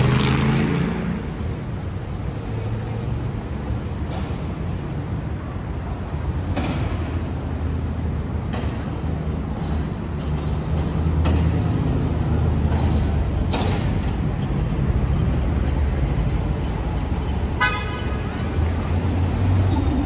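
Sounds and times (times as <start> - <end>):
traffic engine rumble: 0.0 - 20.0
car horn toot: 17.6 - 18.3.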